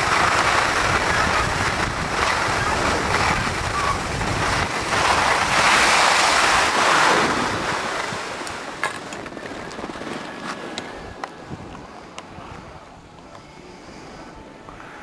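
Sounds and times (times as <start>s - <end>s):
wind on microphone: 0.0s - 8.8s, 9.5s - 13.2s
skis scraping over snow: 0.0s - 11.0s.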